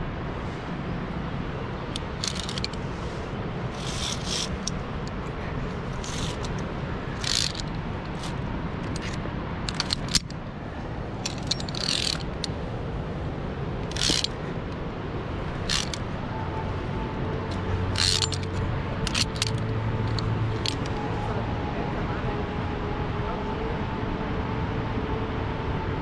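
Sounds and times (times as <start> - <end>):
steady rushing noise: 0.0 - 26.0
carabiners clinking on steel cable: 1.9 - 2.8, 3.7 - 4.8, 5.9 - 6.6, 7.2 - 10.4, 11.2 - 12.5, 13.8 - 14.3, 15.6 - 16.1, 17.5 - 21.1.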